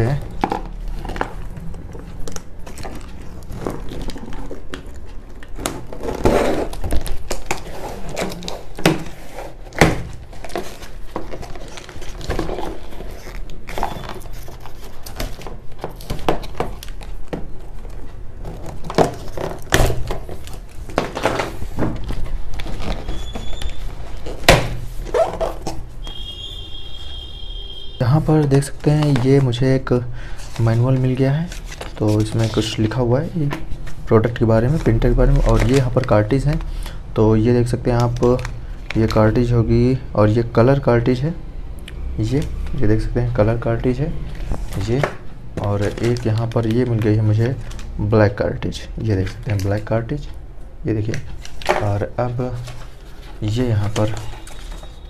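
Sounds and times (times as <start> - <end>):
cardboard flaps knocking and rustling: 5.5 - 25.9.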